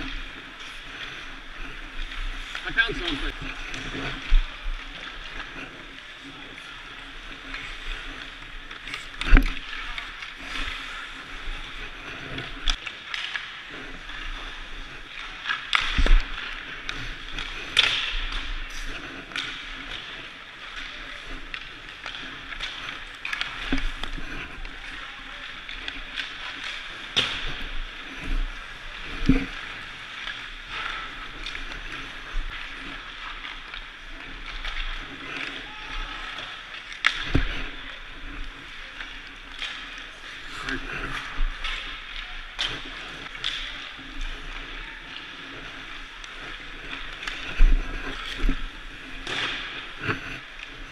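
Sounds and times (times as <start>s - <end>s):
skate blades scraping ice: 0.0s - 50.9s
sticks and pucks clacking: 0.0s - 50.9s
hockey stick striking puck: 15.1s - 18.5s.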